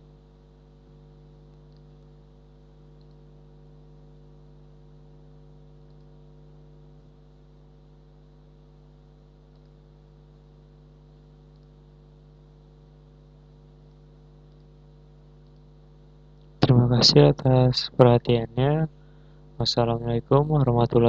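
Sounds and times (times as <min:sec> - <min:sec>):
electrical mains hum: 0:00.0 - 0:21.0
faint light ticks: 0:01.5 - 0:02.1, 0:03.0 - 0:03.3, 0:05.8 - 0:06.2, 0:09.5 - 0:09.8, 0:11.5 - 0:11.8, 0:13.8 - 0:14.7, 0:15.4 - 0:15.7.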